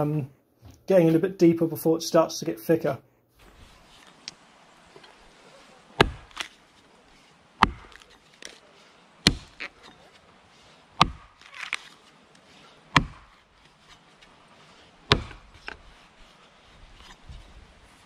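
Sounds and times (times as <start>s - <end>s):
wood crackles: 3.4s - 18.0s
axe chopping tree trunk: 6.0s - 6.6s, 7.6s - 8.6s, 9.2s - 10.1s, 11.0s - 14.0s, 15.1s - 15.8s.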